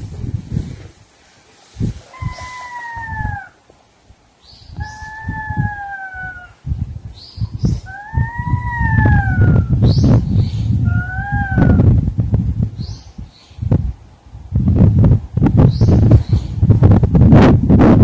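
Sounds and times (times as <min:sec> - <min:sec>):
cats yowling: 0:02.1 - 0:03.6, 0:04.8 - 0:06.6, 0:07.9 - 0:09.7, 0:10.9 - 0:11.8.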